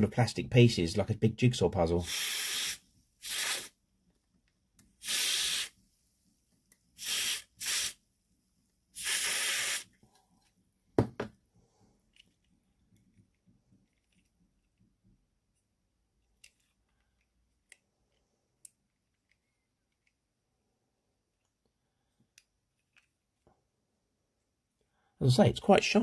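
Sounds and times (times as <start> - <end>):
aerosol spray bursts: 2.0 - 3.8, 5.0 - 5.8, 7.0 - 8.0, 9.0 - 9.9.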